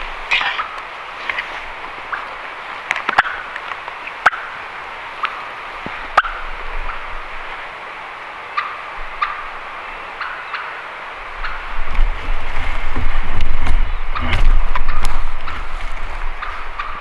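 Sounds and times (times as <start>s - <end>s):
small birds chirping: 12.7s - 17.0s.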